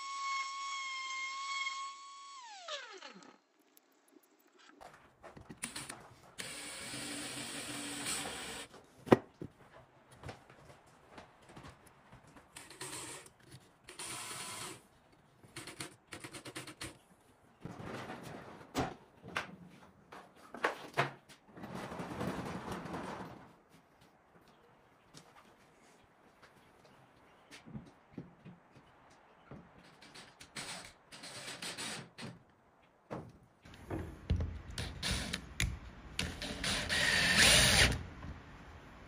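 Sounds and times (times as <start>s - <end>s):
cordless drill running: 6.4s - 8.7s, 36.4s - 38.0s.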